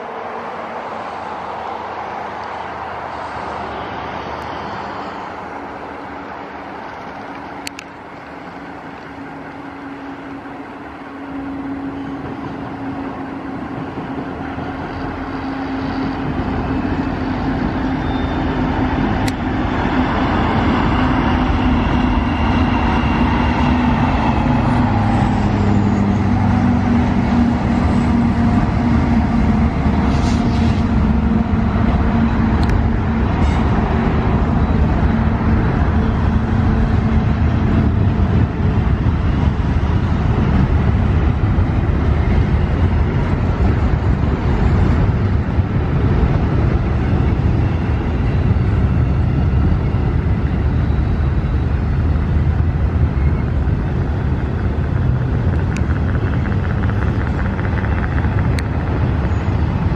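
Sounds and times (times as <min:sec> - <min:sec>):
diesel locomotive engine droning: 0:00.0 - 0:59.9
steel wheels rumbling on rails: 0:00.0 - 0:59.9
sharp rail clicks: 0:19.1 - 0:19.5, 0:54.2 - 0:59.9.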